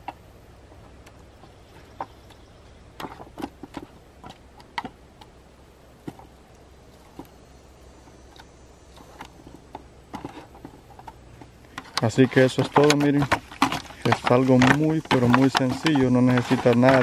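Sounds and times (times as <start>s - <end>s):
hand working meat against foil: 10.2s - 17.0s.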